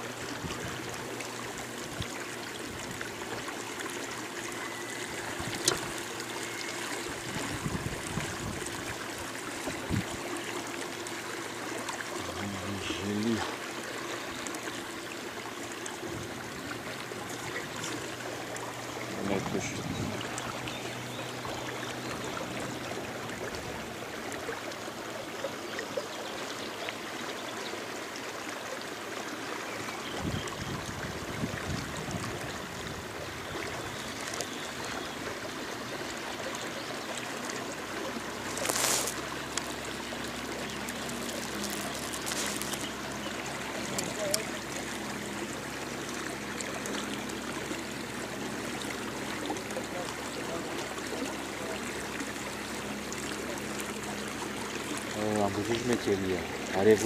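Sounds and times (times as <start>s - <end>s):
water lapping around boat: 0.0s - 57.0s
rustle: 36.5s - 47.6s.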